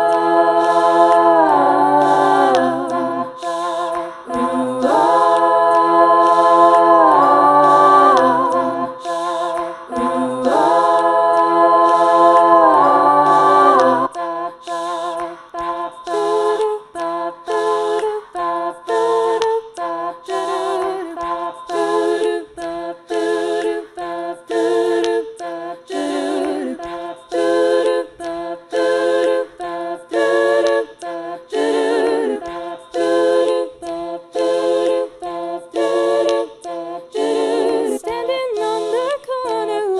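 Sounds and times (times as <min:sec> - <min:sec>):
a cappella vocal harmonies: 0:00.0 - 0:39.9.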